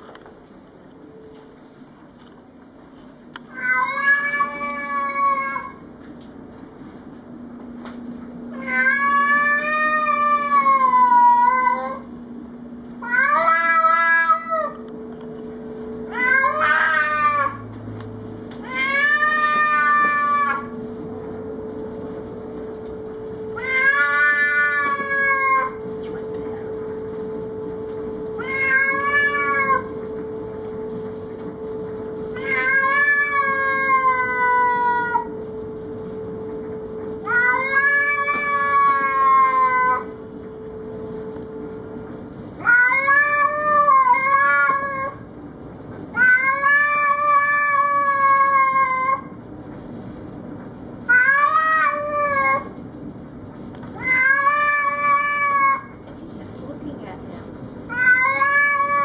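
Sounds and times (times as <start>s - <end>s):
cat yowling: 3.5s - 5.8s, 8.6s - 12.0s, 13.0s - 14.8s, 16.1s - 17.6s, 18.6s - 20.7s, 23.6s - 25.8s, 28.4s - 29.9s, 32.4s - 35.3s, 37.3s - 40.2s, 42.6s - 45.2s, 46.2s - 49.4s, 51.1s - 52.8s, 54.0s - 56.0s, 57.9s - 59.0s.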